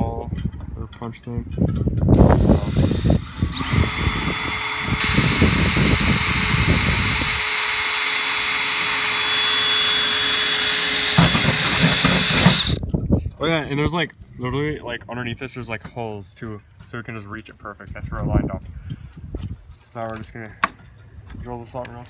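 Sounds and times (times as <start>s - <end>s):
cordless drill drilling metal: 2.1s - 12.8s.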